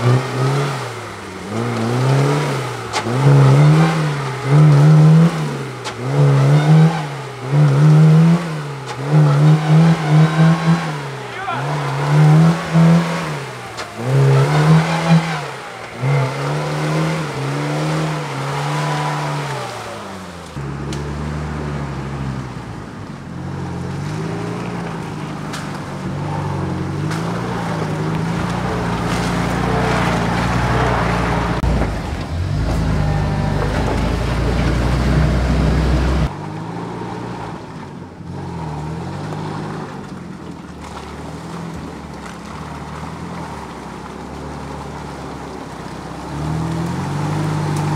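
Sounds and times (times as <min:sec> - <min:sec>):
off-road engines revving: 0:00.0 - 0:47.9
van engine drone: 0:00.0 - 0:47.9
deep rumble: 0:20.2 - 0:36.4.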